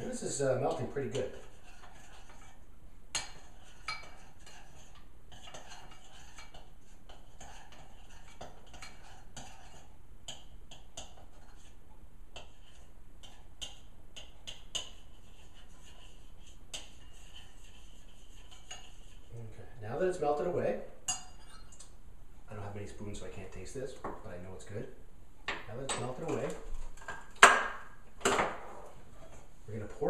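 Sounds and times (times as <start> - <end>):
spoon scraping saucepan: 0.0 - 2.6, 3.2 - 11.8, 12.4 - 19.3
spoon clinking against pot: 21.0 - 21.9.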